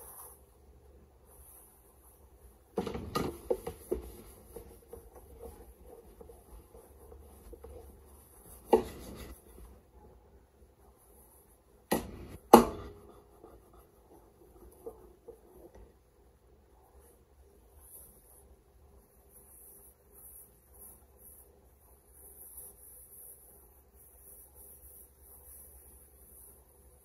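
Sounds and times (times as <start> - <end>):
kitchen knocks and clunks: 2.8 - 5.5, 11.9 - 13.1.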